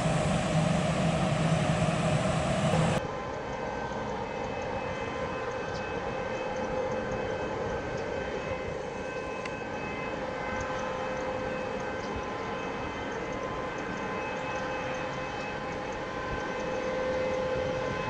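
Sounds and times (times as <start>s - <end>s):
distant jet engines rushing: 0.0s - 3.0s
jet engine whine: 0.0s - 18.0s.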